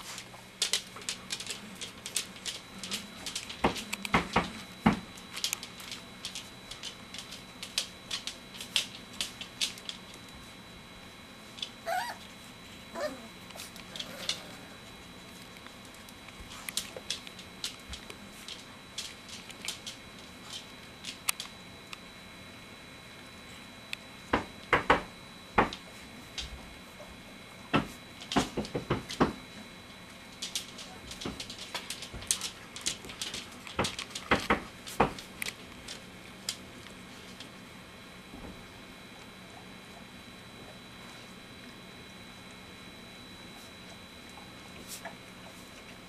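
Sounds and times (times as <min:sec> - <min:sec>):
puppies squealing: 0:11.8 - 0:12.2, 0:13.0 - 0:13.3.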